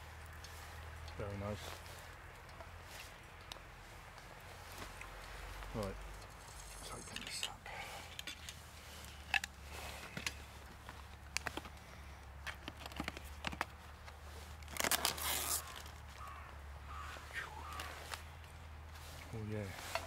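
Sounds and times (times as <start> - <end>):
knife stabbing plastic film: 14.6 - 16.0
plastic film tearing: 14.6 - 16.1.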